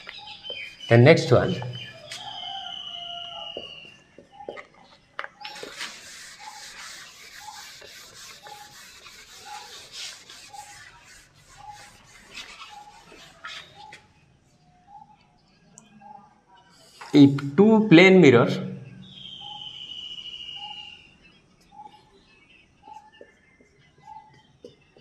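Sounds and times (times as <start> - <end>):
eraser rubbing whiteboard: 5.4 - 14.0.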